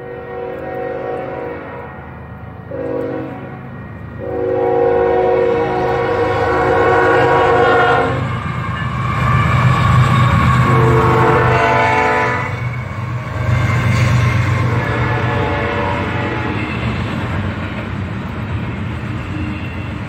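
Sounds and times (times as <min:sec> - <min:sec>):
locomotive air horn blasts: 0:00.0 - 0:01.9, 0:02.7 - 0:03.6, 0:04.2 - 0:08.3, 0:10.6 - 0:12.6, 0:14.6 - 0:16.9
low rumble of diesel locomotives: 0:00.0 - 0:20.0.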